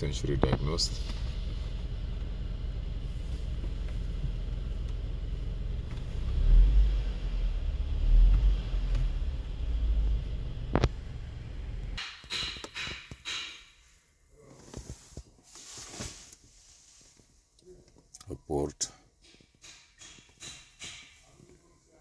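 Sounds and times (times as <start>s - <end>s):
low steady rumble: 0.0s - 12.0s.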